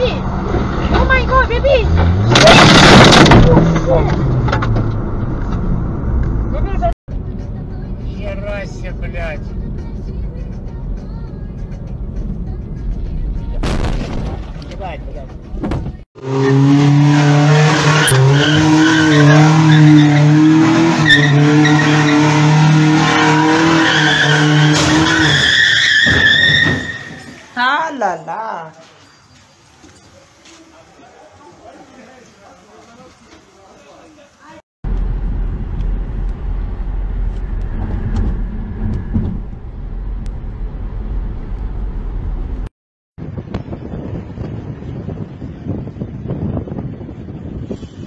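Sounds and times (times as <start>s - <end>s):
tyres spinning and squealing: 0.0s - 5.7s, 16.2s - 27.6s
car road and wind noise: 0.0s - 27.6s, 34.8s - 48.0s
truck engine at high revs: 16.2s - 27.0s.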